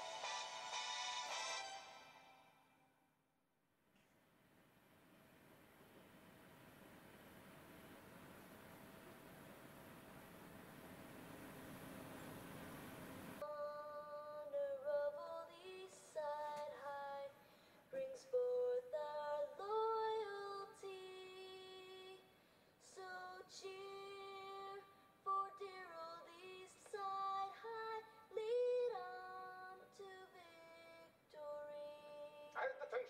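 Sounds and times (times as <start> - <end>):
young voices singing on television: 13.4 - 32.7.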